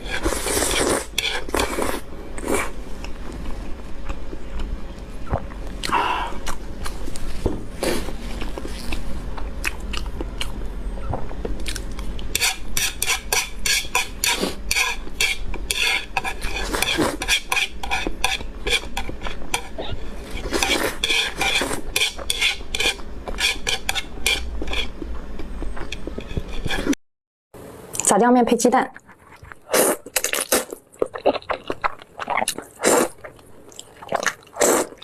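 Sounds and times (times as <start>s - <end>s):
slurping noodles: 0.0s - 2.8s, 15.8s - 24.9s, 32.7s - 33.2s, 34.1s - 35.0s.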